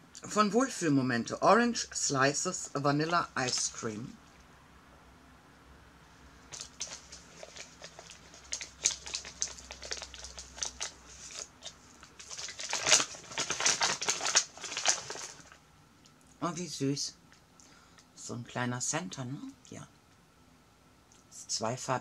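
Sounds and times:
paper bag crinkling: 0:03.1 - 0:03.9, 0:06.5 - 0:15.6.

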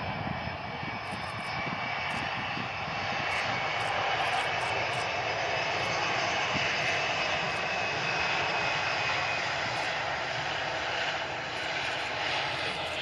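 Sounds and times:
high jet engine whine: 0:00.0 - 0:13.0
jet engines roaring: 0:00.0 - 0:13.0.

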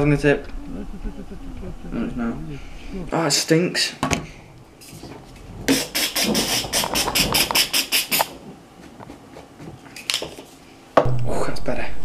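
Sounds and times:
air freshener spray bursts: 0:05.7 - 0:08.3.

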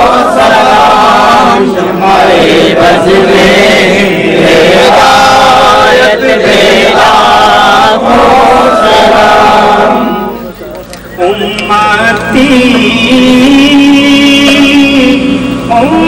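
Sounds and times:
men chanting together: 0:00.0 - 0:10.4.

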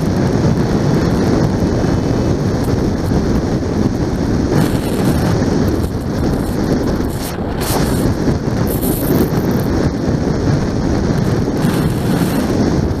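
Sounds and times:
motorcycle running: 0:00.0 - 0:13.0
wind buffeting microphone: 0:00.0 - 0:13.0.

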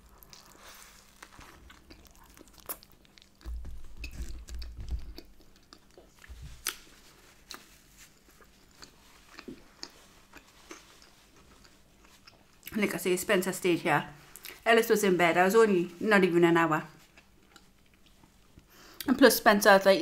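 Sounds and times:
wet chewing and mouth clicks: 0:00.0 - 0:12.8, 0:17.0 - 0:19.1.

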